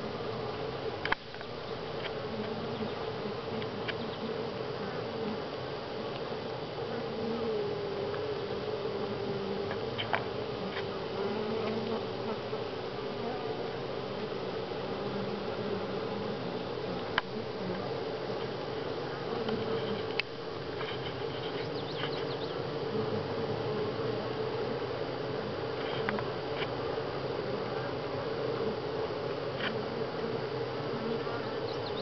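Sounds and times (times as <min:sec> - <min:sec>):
bees buzzing: 0:00.0 - 0:32.0
faint clicks: 0:01.0 - 0:02.6, 0:03.6 - 0:04.2, 0:09.6 - 0:10.9, 0:19.4 - 0:22.4, 0:25.8 - 0:26.8.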